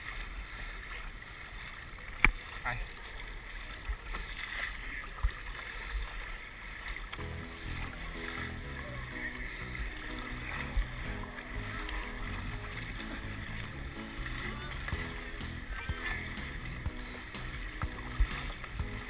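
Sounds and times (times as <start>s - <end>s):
water sloshing against kayak hull: 0.0s - 19.0s
background music: 7.2s - 19.0s.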